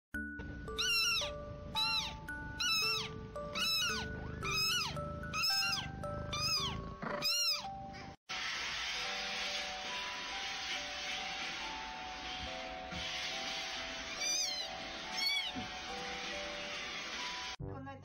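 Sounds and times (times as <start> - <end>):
background music: 0.2 - 8.1, 9.0 - 18.0
kitten meowing: 0.8 - 7.7, 14.2 - 15.6.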